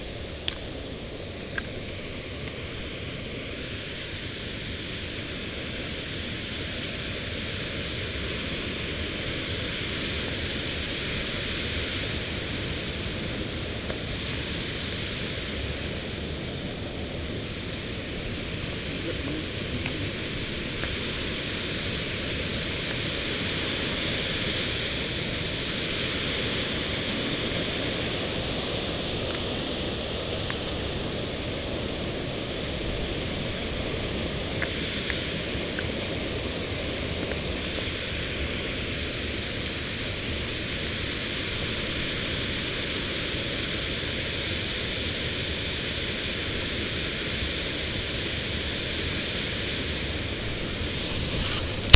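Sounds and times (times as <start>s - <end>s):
water rushing over rocks: 17.4s - 45.2s.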